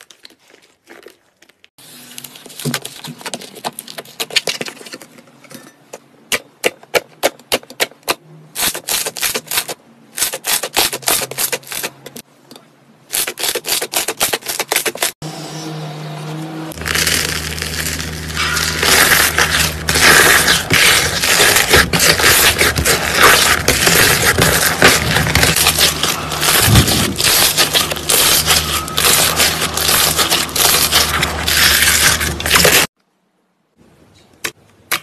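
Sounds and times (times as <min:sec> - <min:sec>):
slime crackling and popping: 0:16.8 - 0:32.9.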